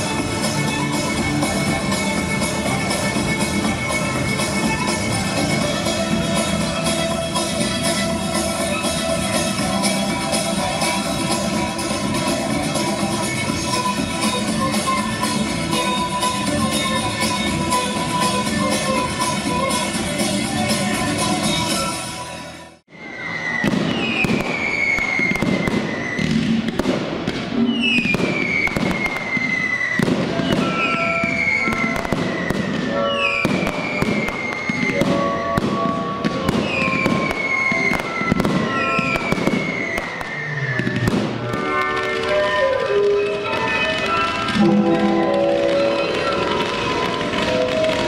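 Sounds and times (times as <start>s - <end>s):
fireworks crackling pops and bangs: 0.0s - 21.9s, 23.4s - 48.0s
dance music: 0.0s - 22.7s
whistling fireworks: 22.9s - 48.0s.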